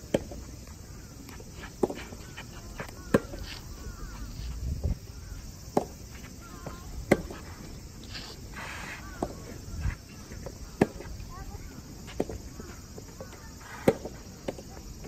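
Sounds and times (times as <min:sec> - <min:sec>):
tennis rackets hitting ball: 0:01.2 - 0:03.6, 0:05.7 - 0:07.5.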